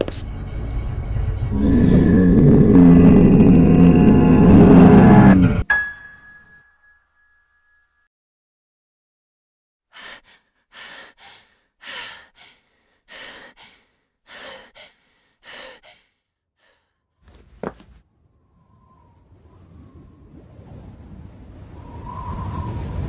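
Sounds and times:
girl breathing heavily: 10.0 - 16.9.

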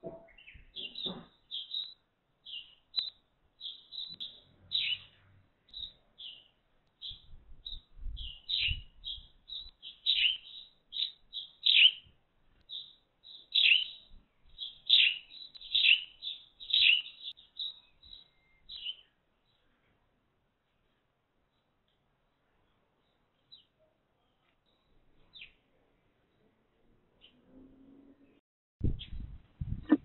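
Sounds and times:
sparrow chirping: 0.3 - 19.7, 28.8 - 30.0.

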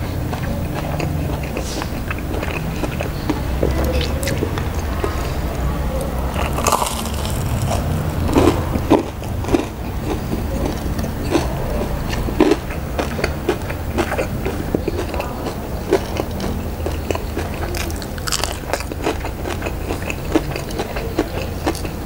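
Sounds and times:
low steady hum: 0.0 - 22.0
crunching crispy fried food: 6.0 - 22.0.

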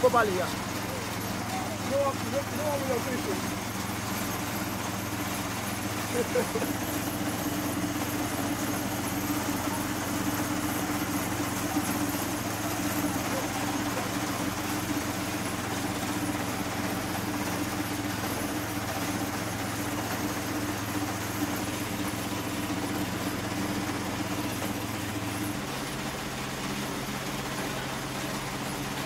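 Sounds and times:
engine droning: 0.0 - 29.0.

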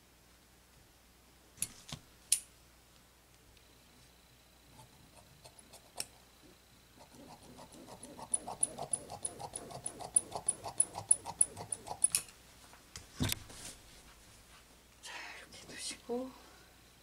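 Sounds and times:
shears snipping through fabric: 7.0 - 12.2.

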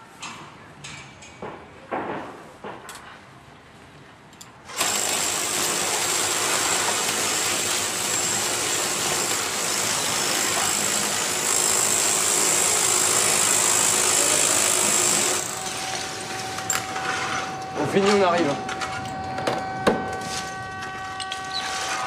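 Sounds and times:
hammer drill boring concrete: 4.7 - 18.3
angle grinder cutting: 4.8 - 18.1.

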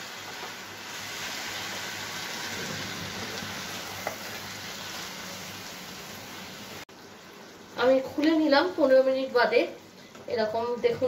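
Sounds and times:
food sizzling in frying pan: 0.0 - 11.0.

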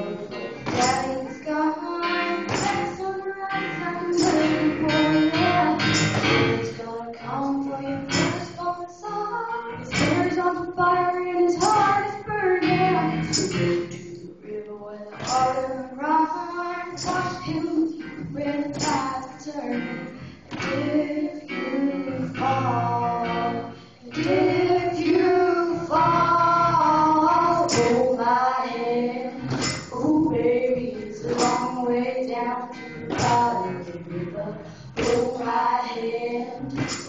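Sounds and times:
girls singing into microphones: 0.0 - 37.0.

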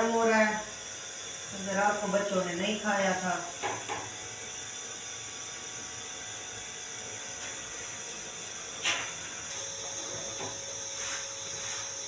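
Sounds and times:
gas burners hissing: 0.0 - 12.0.

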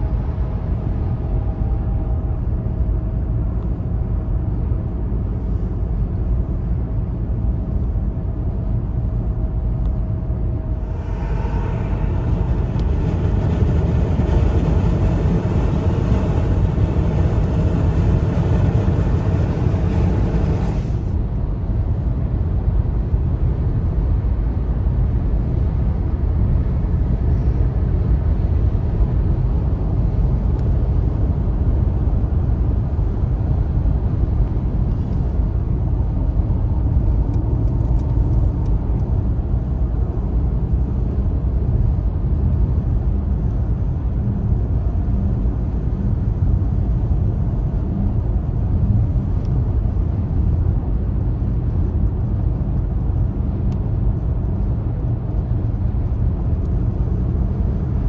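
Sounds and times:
tyre and engine rumble: 8.9 - 22.1.

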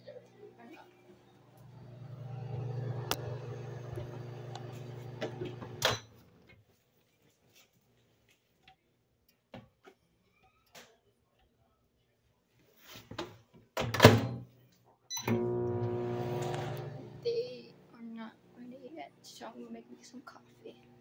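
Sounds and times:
microwave oven humming: 0.0 - 6.4, 15.1 - 21.0.

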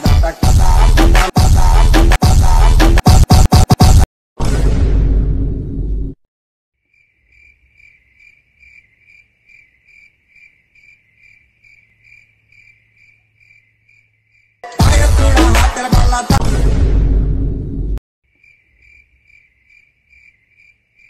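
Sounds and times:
loud music: 0.0 - 4.1, 14.6 - 17.9
crickets chirping: 6.8 - 14.6, 18.3 - 21.0.

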